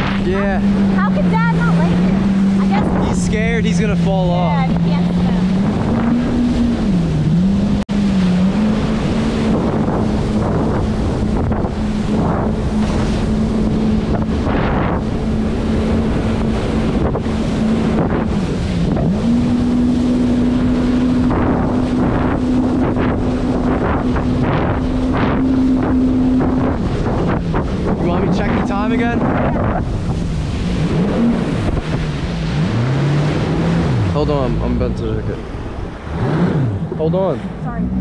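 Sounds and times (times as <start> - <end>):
jet ski engine running: 0.0 - 38.0
wind buffeting microphone: 0.0 - 38.0.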